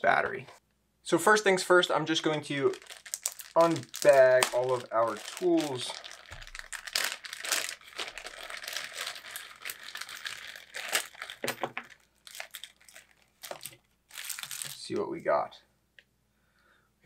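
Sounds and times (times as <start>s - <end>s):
plastic bags crinkling: 2.1s - 15.0s.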